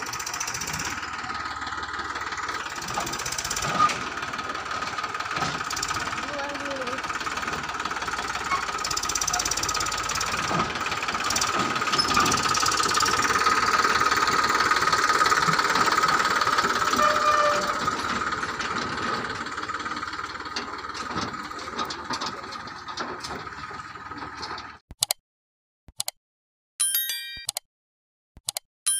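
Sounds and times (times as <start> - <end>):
tractor diesel engine knocking: 0.0 - 24.8
sharp clicks: 24.9 - 25.2, 25.9 - 26.2, 28.4 - 28.7
short chiming dings: 26.8 - 27.6.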